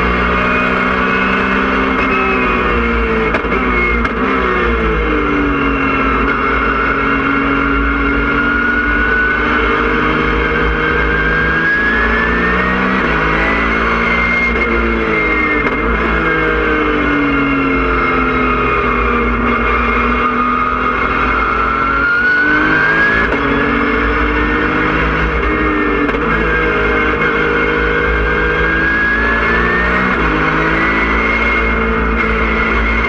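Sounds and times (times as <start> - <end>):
race car engine accelerating: 0.0 - 33.0.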